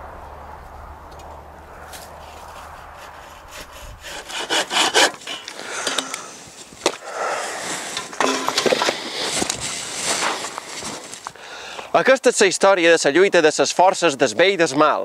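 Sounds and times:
dry sticks scraping and crackling: 1.1s - 11.9s.

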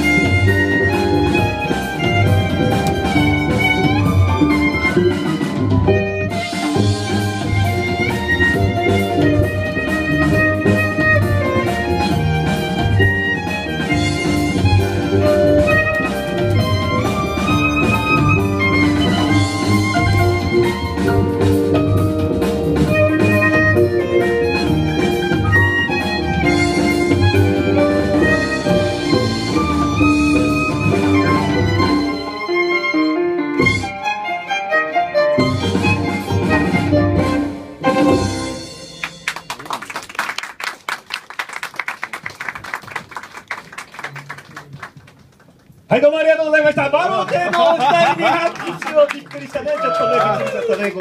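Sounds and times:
double bass line: 0.0s - 33.9s, 35.4s - 39.3s
violin melody: 0.0s - 39.2s.

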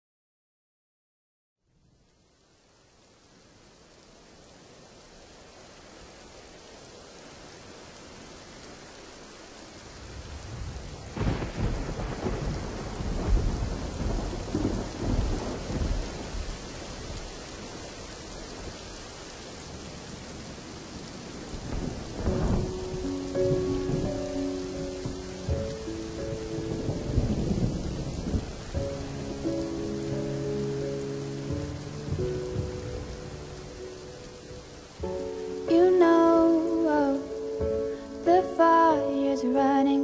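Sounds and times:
rain hiss: 1.6s - 40.0s
rumbling thunder: 9.9s - 19.1s, 19.7s - 35.4s.

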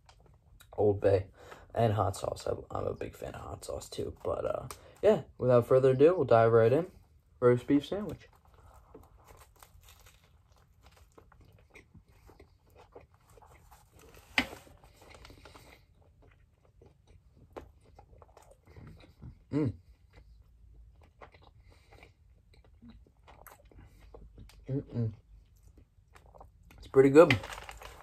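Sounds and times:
person chewing crunchy food: 8.2s - 26.9s.

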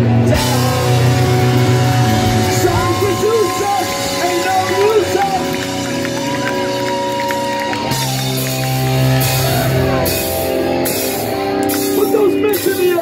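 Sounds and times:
punk rock band playing live: 0.0s - 13.0s.

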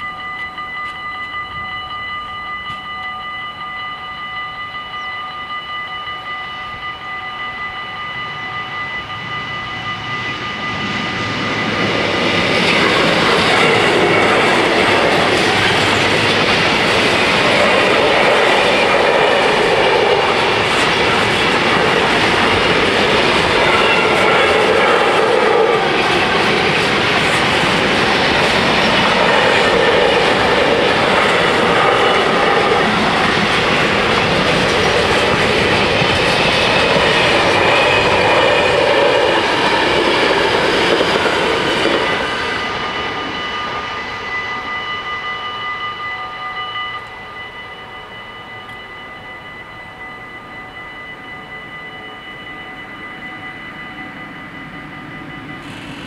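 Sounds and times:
level crossing bells ringing: 0.0s - 56.0s
freight train wheels clattering: 10.0s - 44.5s.

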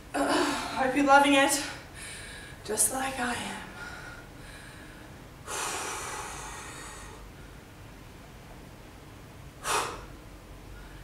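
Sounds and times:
woman breathing hard: 1.8s - 2.6s, 3.7s - 7.7s, 9.6s - 11.0s.

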